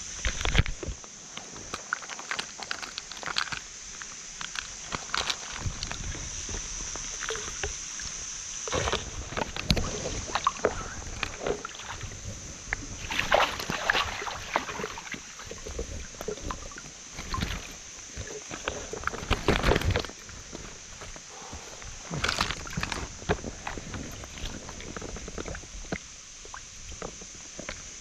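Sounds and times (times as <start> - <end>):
fish thrashing water: 12.9 - 20.9.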